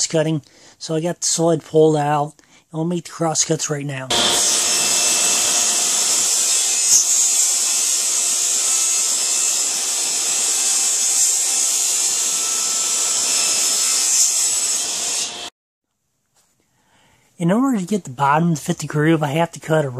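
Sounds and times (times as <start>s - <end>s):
table saw cutting panel: 4.1s - 15.5s.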